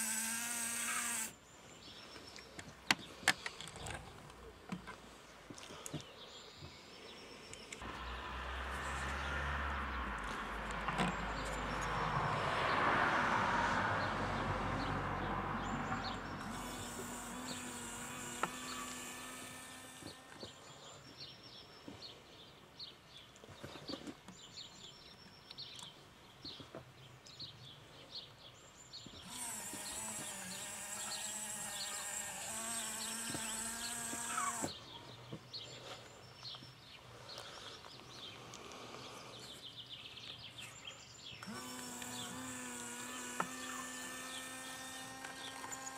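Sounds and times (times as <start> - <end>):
small electric motor whirring: 0.0 - 1.4, 7.8 - 12.6, 15.8 - 20.7, 29.2 - 34.8, 41.4 - 45.9
birds chirping: 0.0 - 13.4, 14.0 - 45.9.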